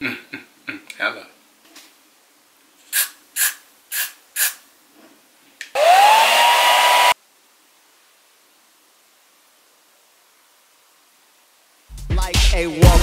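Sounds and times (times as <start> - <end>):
hairspray can hissing: 2.9 - 4.6
hair dryer motor whine and air: 5.7 - 7.2.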